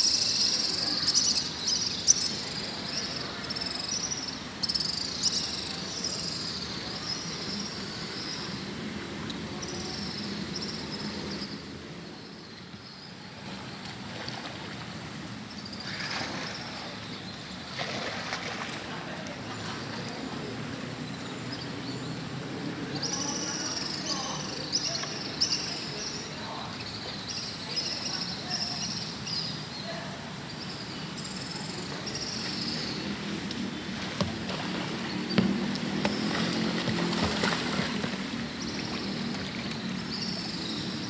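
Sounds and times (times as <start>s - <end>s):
water splashing: 13.4s - 20.0s, 33.8s - 40.5s.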